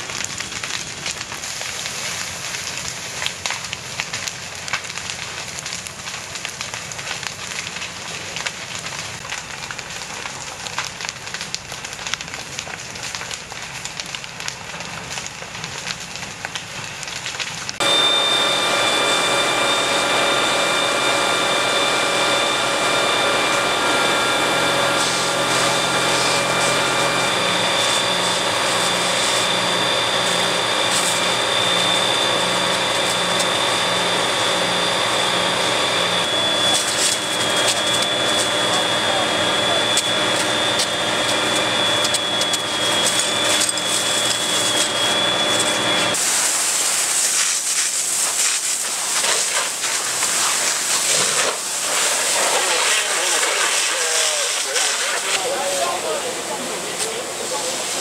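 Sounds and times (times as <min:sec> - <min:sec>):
fire crackling and popping: 0:00.0 - 0:58.0
pump engine drone with whining: 0:11.9 - 0:58.0
rushing noise: 0:17.8 - 0:49.2.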